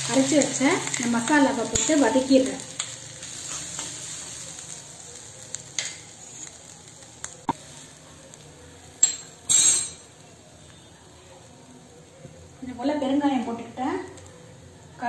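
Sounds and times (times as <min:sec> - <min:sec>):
masala sizzling in oil: 0:00.0 - 0:15.0
spoon clinking on pan: 0:09.0 - 0:10.1.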